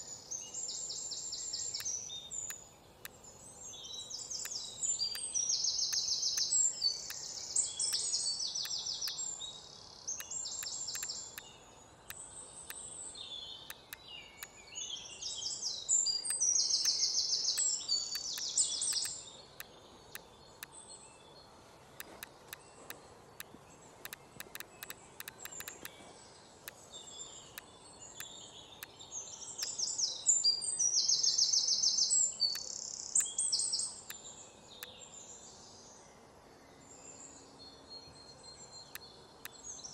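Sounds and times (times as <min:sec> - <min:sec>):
faint outdoor hiss: 0:00.0 - 0:39.9
short sharp clicks: 0:10.6 - 0:11.5, 0:24.1 - 0:25.9.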